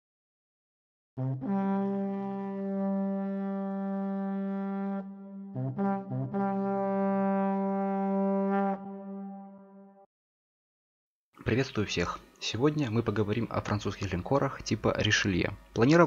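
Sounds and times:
brass fanfare: 1.2 - 10.0.

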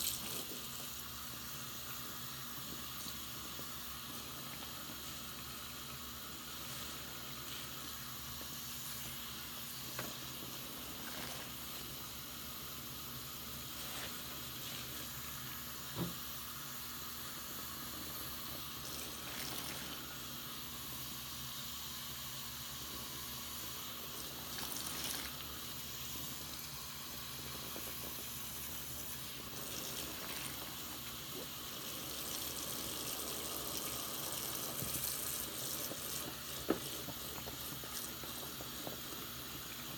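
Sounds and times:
sponge squeezed foam crackling: 0.0 - 16.0, 17.4 - 20.7, 22.9 - 39.9
tap water running into sink: 17.2 - 20.4, 22.8 - 39.9.

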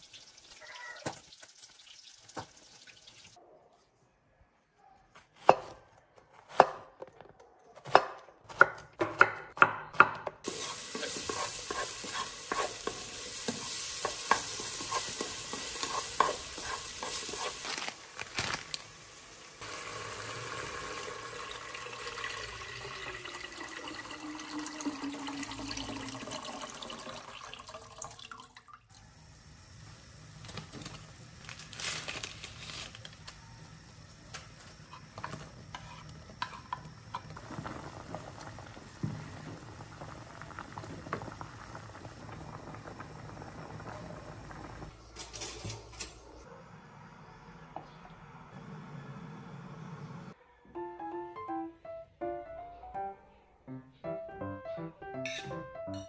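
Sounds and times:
knife chopping on wooden board: 7.9 - 10.4
pot of water heating hiss: 10.4 - 27.1, 28.9 - 45.0.

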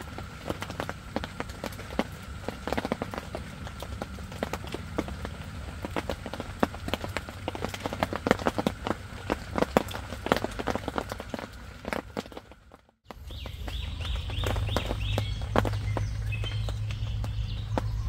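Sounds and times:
low steady hum: 0.0 - 18.0
raindrops tapping on tent fabric: 0.0 - 18.0
water drips: 0.0 - 18.0
bird chirping: 13.1 - 18.0.

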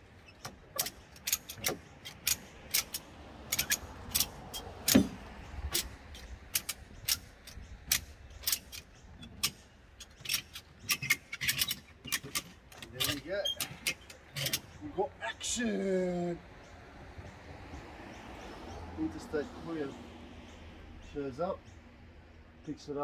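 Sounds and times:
ratchet strap clicking: 0.3 - 14.8.

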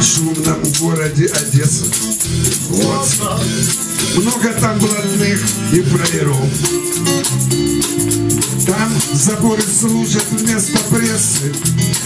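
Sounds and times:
man singing: 0.0 - 7.1, 8.5 - 12.0
acoustic guitar strummed: 0.0 - 12.0.

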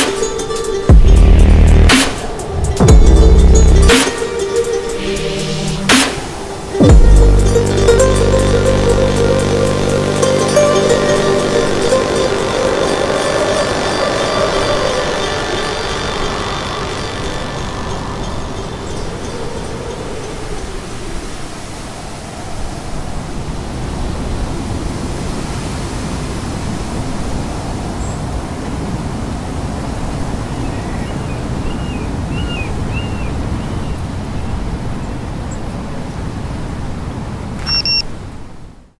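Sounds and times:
rushing wind: 0.0 - 39.0
short high beep: 37.6 - 38.1.

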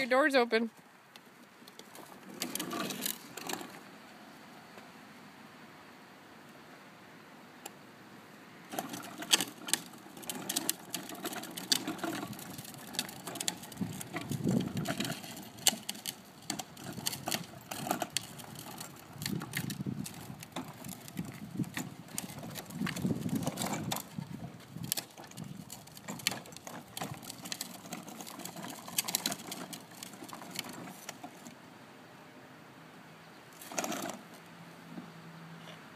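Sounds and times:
plastic wheels rolling on asphalt: 0.0 - 5.0, 7.6 - 31.8, 33.5 - 35.9
short rattle: 8.7 - 31.5.

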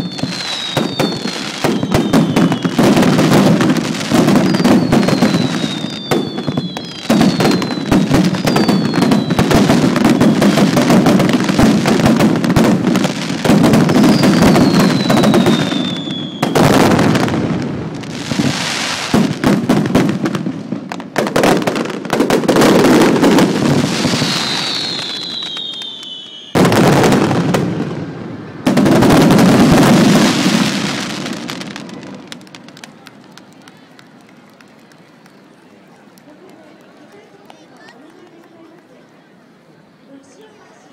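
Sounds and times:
falling firework whistles: 0.0 - 17.4, 22.5 - 27.6
fireworks crackling and bangs: 0.0 - 38.0.

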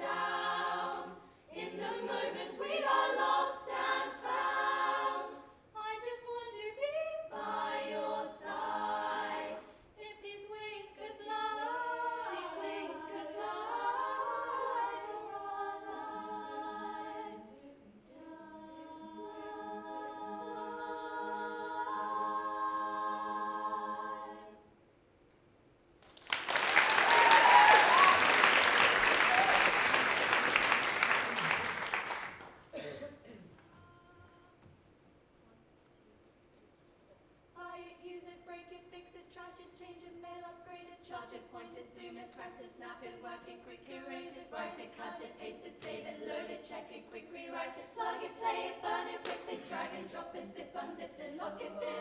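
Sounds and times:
girls choir singing a cappella: 0.0 - 24.8, 37.6 - 52.0
audience applause: 26.0 - 32.6.

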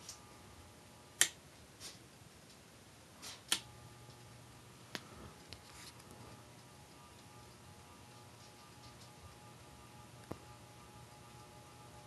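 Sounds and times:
faint electrical fan hum: 0.0 - 12.0
wall switch clicking: 3.5 - 3.7.

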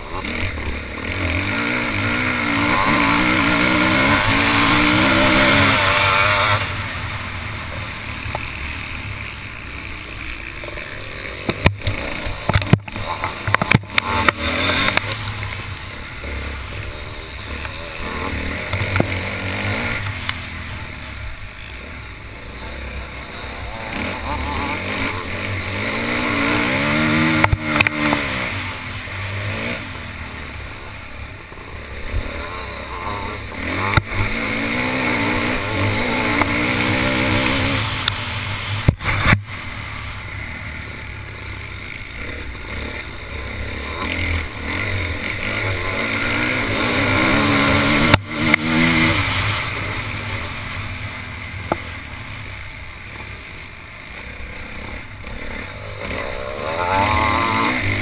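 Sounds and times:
motocross bike engine revving: 0.0 - 58.0
sharp knocks and clatter: 11.4 - 15.6.

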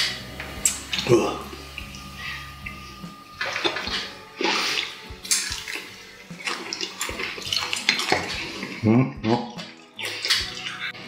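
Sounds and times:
wet chewing: 0.0 - 11.0.

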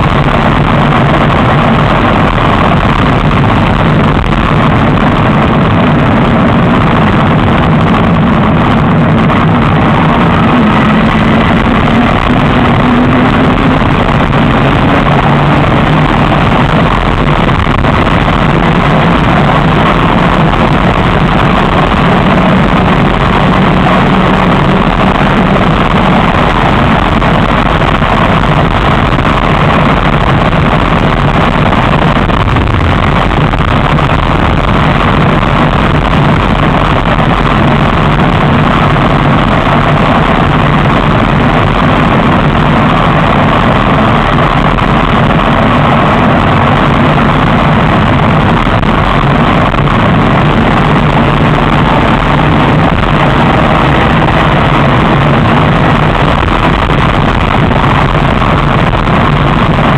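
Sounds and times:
faint steady hum: 0.0 - 59.9
wind and road noise: 0.0 - 59.9.

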